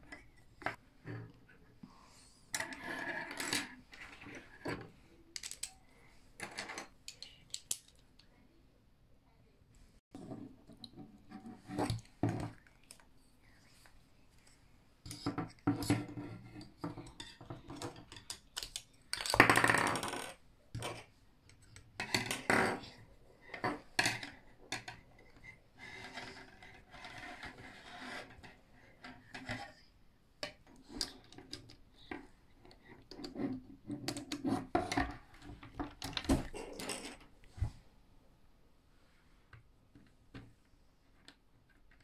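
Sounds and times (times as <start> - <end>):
plastic toy parts clicking: 5.4 - 5.8, 6.6 - 8.3, 17.7 - 20.9
parts rubbing on wooden table: 25.4 - 29.7.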